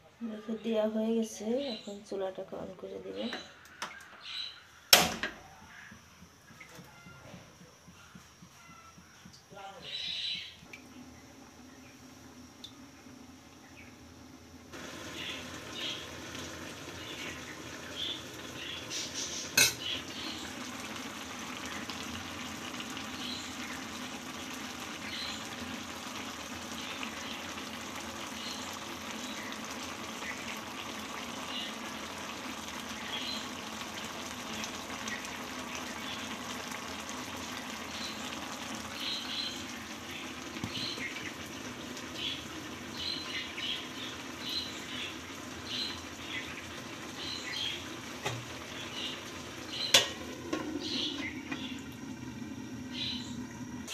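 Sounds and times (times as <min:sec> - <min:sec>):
food sizzling in a pan: 0:14.7 - 0:53.9
metal pan clank: 0:19.6 - 0:19.9.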